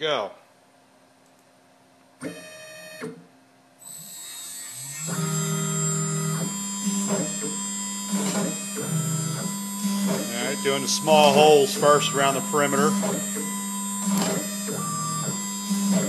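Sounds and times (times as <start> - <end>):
spindle high whine: 3.8 - 16.0
stepper motors pitched hum: 3.9 - 16.0.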